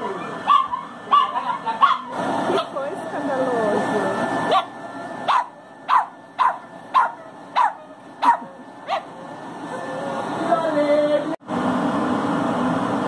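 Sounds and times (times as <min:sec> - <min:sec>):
small dog yapping: 0:00.0 - 0:02.7, 0:04.5 - 0:04.7, 0:05.3 - 0:09.1.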